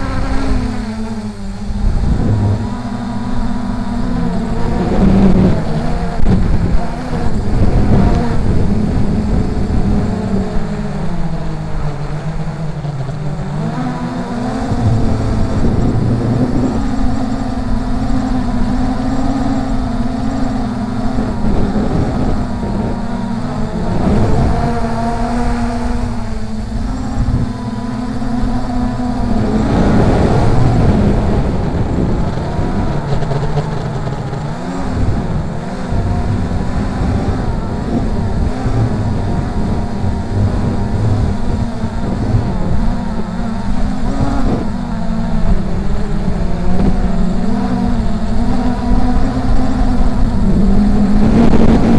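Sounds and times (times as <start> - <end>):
quadcopter propellers humming: 0.0 - 51.9
wind buffeting microphone: 0.0 - 51.9.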